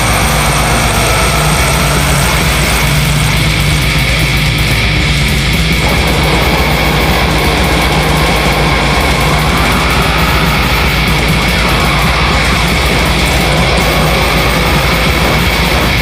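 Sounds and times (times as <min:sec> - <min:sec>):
death metal music: 0:00.0 - 0:16.0.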